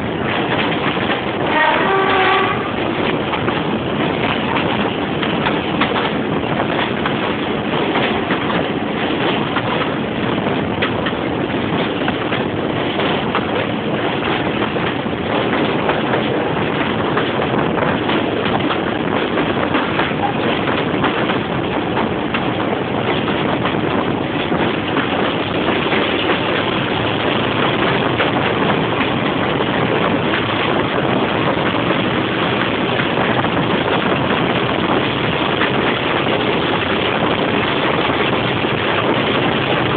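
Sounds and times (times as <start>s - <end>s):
diesel locomotive engine din: 0.0s - 39.9s
train running on track: 0.0s - 39.9s
wind rushing over microphone: 0.0s - 39.9s.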